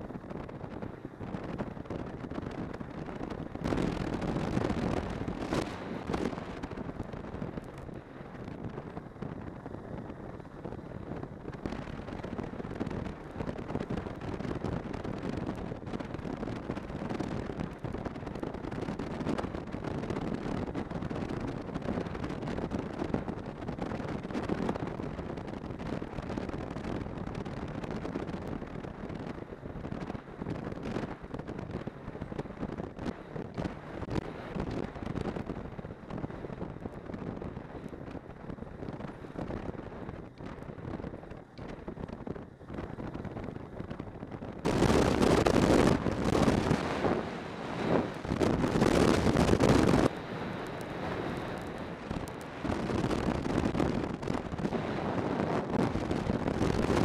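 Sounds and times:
wind buffeting microphone: 0.0 - 57.0
snowmobile engine running: 42.6 - 57.0.

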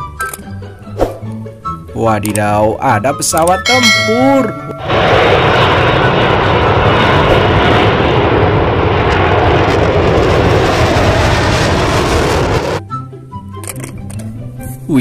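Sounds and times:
jet engine rushing noise: 4.6 - 12.8.

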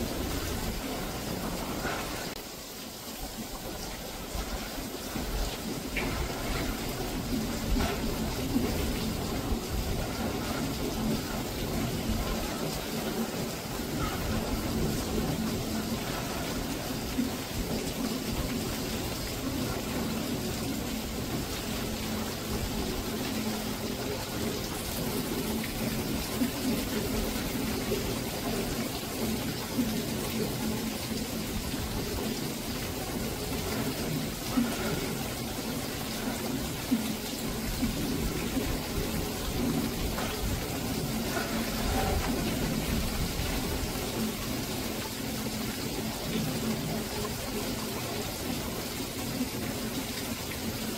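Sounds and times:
rain and gusting wind: 0.0 - 50.9.

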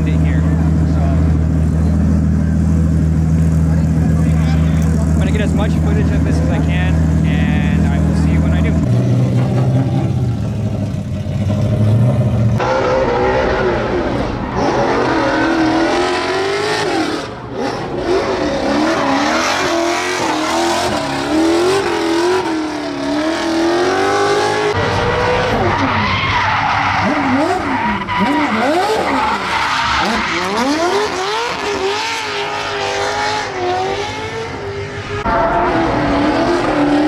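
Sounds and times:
car engine revving: 0.0 - 37.0
tyres squealing: 25.4 - 31.8.

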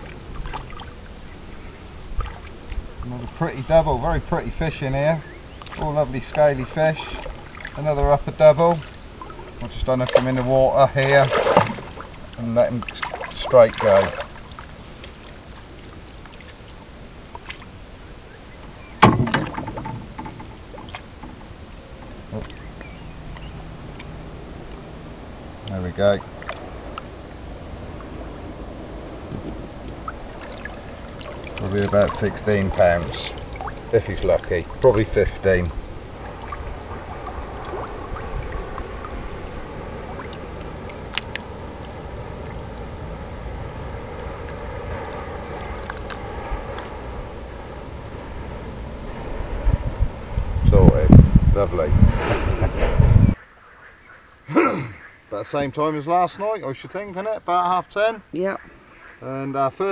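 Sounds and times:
water lapping and sloshing: 0.0 - 49.6
low rumble: 0.0 - 54.5
fish thrashing splash: 8.8 - 16.8, 29.9 - 42.8.

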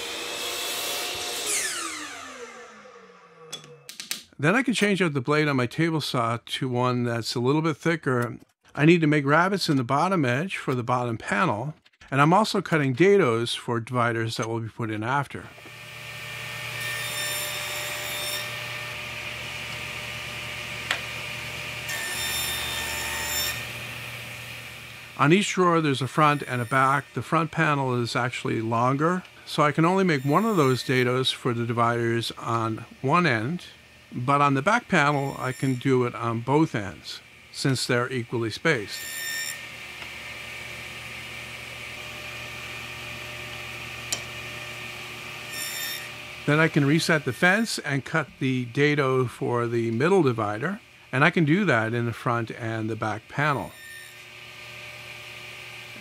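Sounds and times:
table saw cutting wood: 0.0 - 3.9, 15.5 - 56.0
workshop machinery whirring: 0.0 - 3.9, 15.5 - 51.7, 52.9 - 56.0.

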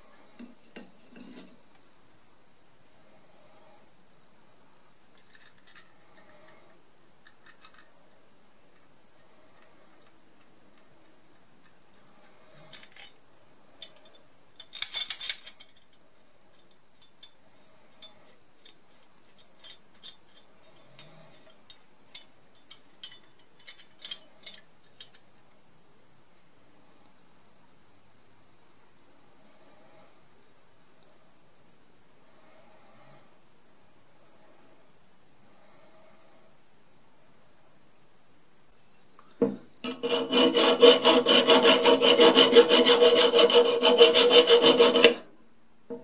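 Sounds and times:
light metal clicks and clinks: 19.6 - 25.4.

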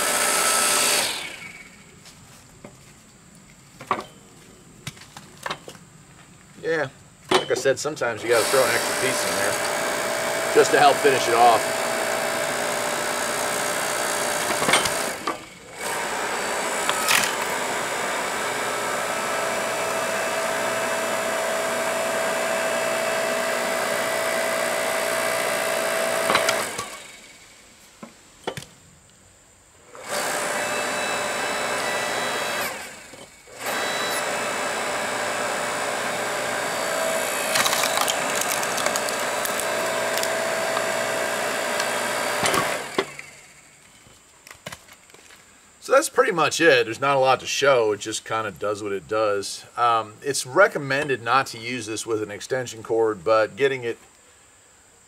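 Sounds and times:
log splitter pump whining: 0.0 - 2.2, 7.2 - 28.7, 29.8 - 44.2
wood cracking: 37.4 - 41.0.

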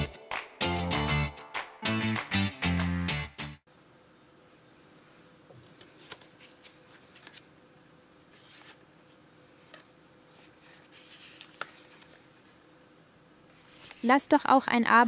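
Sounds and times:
faint steady hum: 3.7 - 15.0
cardboard rubbing against hands: 10.3 - 12.2.

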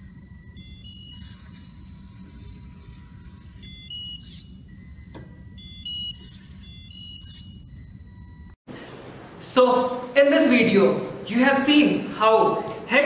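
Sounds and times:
high electronic beeping notes: 0.0 - 8.6.

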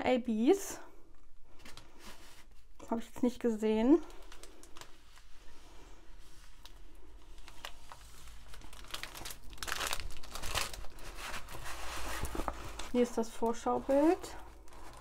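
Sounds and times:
plastic packaging crinkling: 4.0 - 5.5, 6.4 - 15.0.

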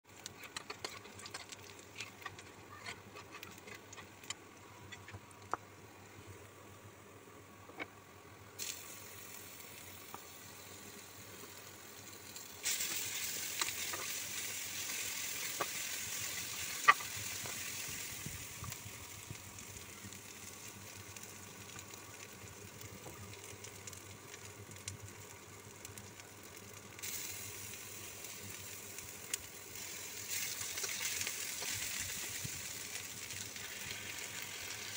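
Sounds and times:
onions sizzling in oil: 8.6 - 34.9.

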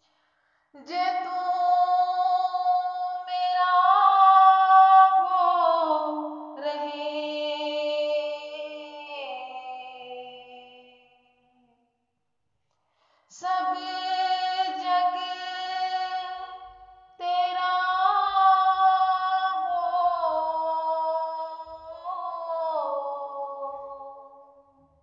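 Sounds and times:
woman singing unaccompanied: 0.8 - 11.1, 13.3 - 24.5.

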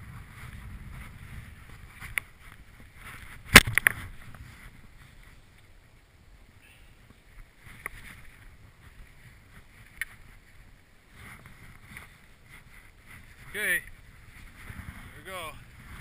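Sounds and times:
jacket and gloves rustling: 7.5 - 16.0.

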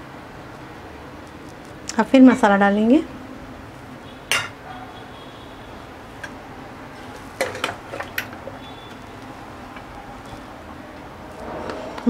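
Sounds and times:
metal ladle clinking on cookware: 4.3 - 4.6, 7.4 - 8.5.

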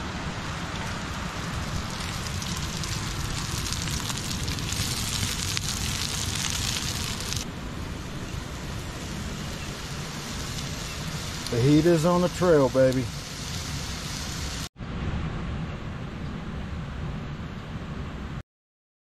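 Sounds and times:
meat sizzling in oil: 0.9 - 7.4, 8.6 - 14.7.

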